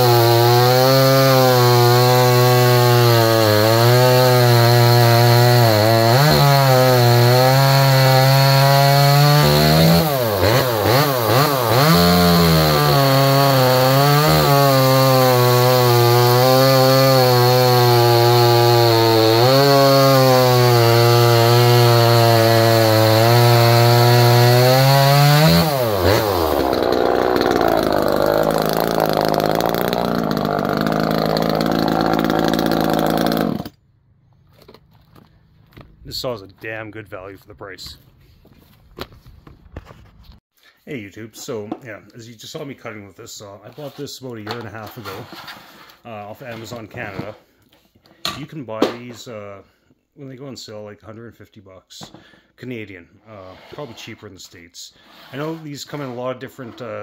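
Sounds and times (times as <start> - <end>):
chainsaw cutting logs: 0.0 - 33.8, 55.0 - 57.0.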